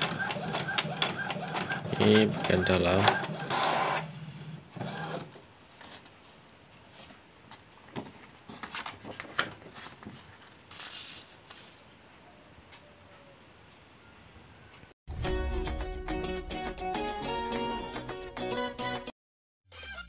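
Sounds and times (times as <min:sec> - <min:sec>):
high-pitched whine: 0:09.2 - 0:14.9.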